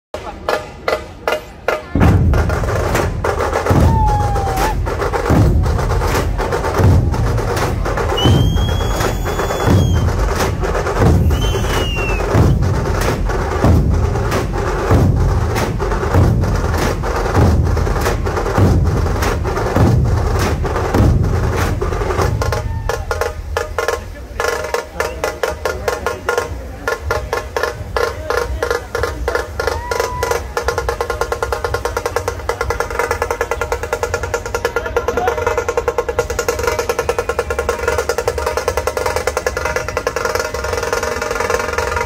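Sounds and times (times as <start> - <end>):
dhol drums bass beats: 0.2 - 42.0
tasha drums stick clatter: 0.2 - 42.0
short whistles: 8.1 - 10.2, 11.2 - 12.6.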